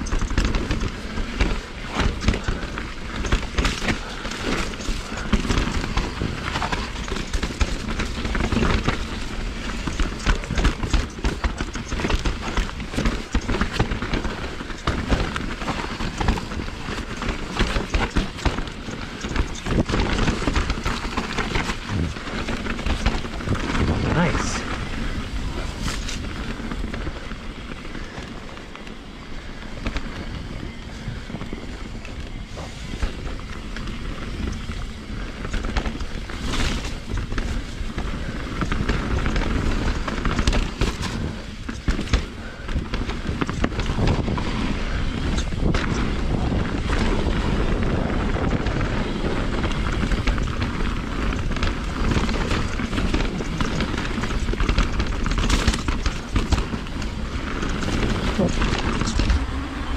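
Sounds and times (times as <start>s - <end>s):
bike knocks and rattles: 0.0s - 59.9s
wind rumble on microphone: 0.0s - 59.9s
tyre noise over dirt: 32.4s - 59.9s.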